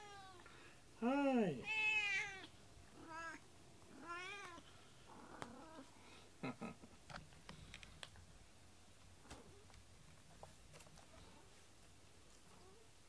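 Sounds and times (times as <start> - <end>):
cat meowing: 0.0 - 0.4, 1.6 - 4.6
faint clicks and taps: 7.1 - 8.3.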